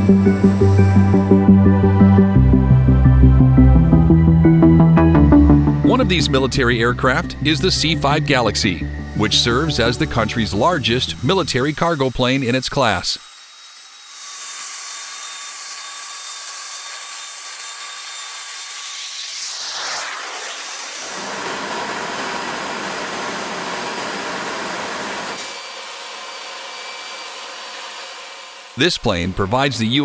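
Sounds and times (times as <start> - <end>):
machinery rush with high whine: 5.3 - 12.5, 19.2 - 25.4.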